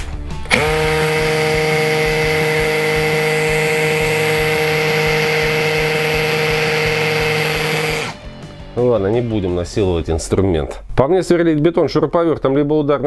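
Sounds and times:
hammer drill drilling into concrete: 0.4s - 8.2s.

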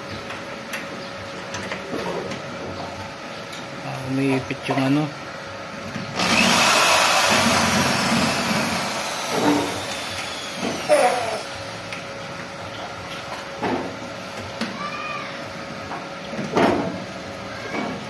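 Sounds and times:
cordless drill whining: 6.2s - 11.6s.

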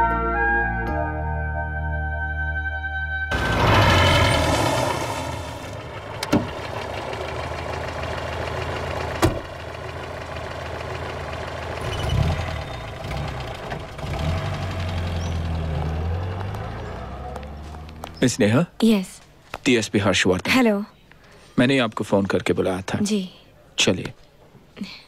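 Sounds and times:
car engine idling: 3.3s - 18.3s.

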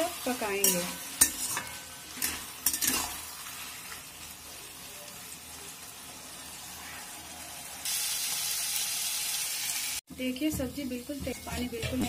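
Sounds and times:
vegetables sizzling in a pan: 0.0s - 12.0s
spatula scraping a pan: 0.5s - 4.0s.

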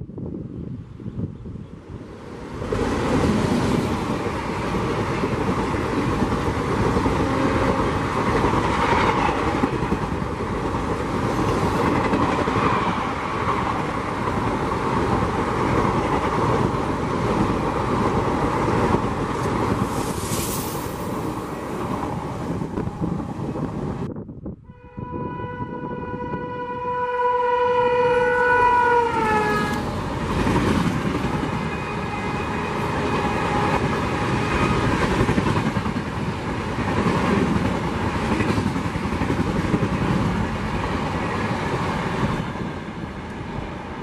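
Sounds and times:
train passing at speed: 0.0s - 44.0s.

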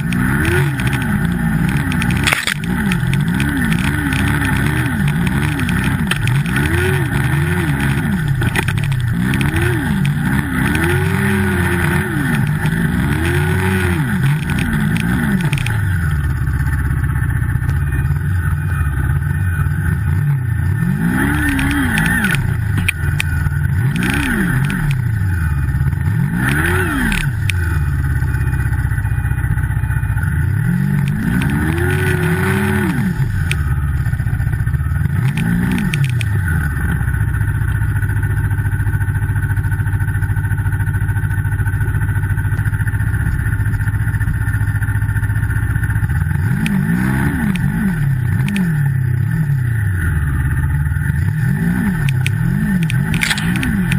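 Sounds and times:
snowmobile engine revving: 0.0s - 16.8s, 17.7s - 29.0s, 30.2s - 37.1s, 46.2s - 53.9s.

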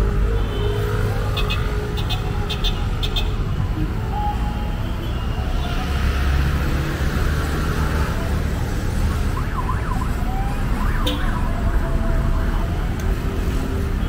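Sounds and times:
road traffic rumble: 0.0s - 14.0s
siren yelping: 9.1s - 11.7s.

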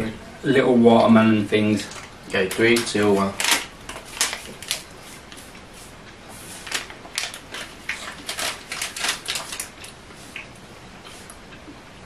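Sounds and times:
plastic wrapper crinkling: 1.9s - 5.4s, 6.6s - 10.0s.

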